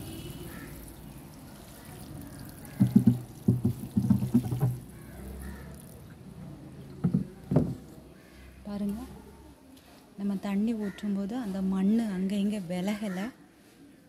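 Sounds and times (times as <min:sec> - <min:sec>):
water sprinkling onto soil: 0:00.0 - 0:06.0
low knocks and rumbles: 0:02.7 - 0:04.9.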